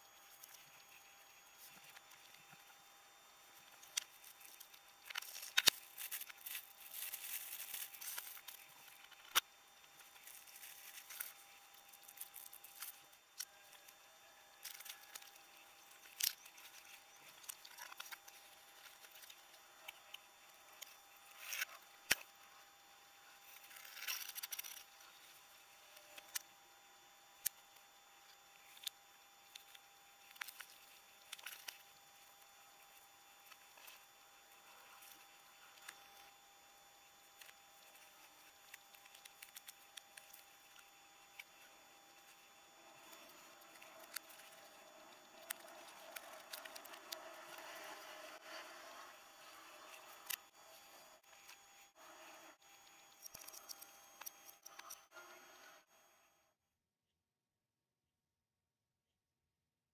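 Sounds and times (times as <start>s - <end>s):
faint steady tone: 0.0s - 56.6s
plastic packaging rustling: 3.6s - 9.3s.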